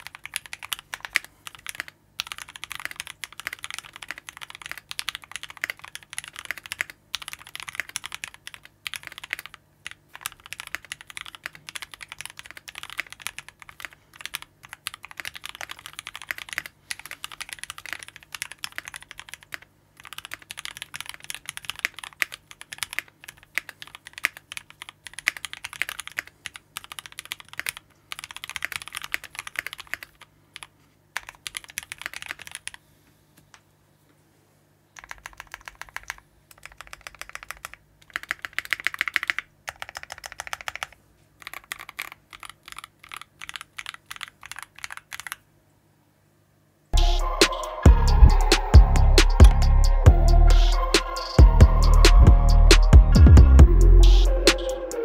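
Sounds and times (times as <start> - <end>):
fast typing on mechanical keyboard: 0.0 - 32.8, 35.0 - 45.4.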